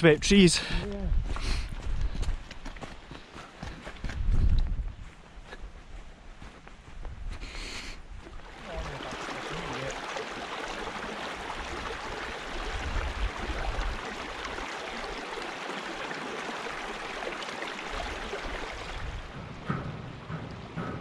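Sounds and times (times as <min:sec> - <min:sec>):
wind on microphone: 0:00.7 - 0:02.5, 0:04.0 - 0:05.2, 0:11.6 - 0:14.4, 0:18.0 - 0:21.0
water flowing over stones: 0:08.2 - 0:19.6.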